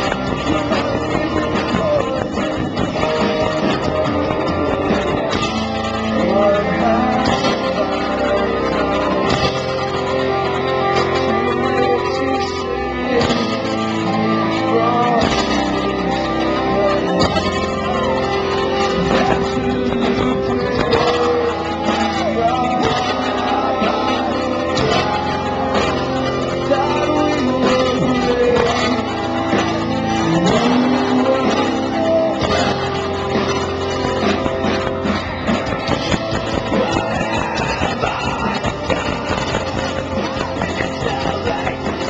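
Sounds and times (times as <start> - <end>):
live rock band: 0.0 - 42.0
person singing: 0.0 - 42.0.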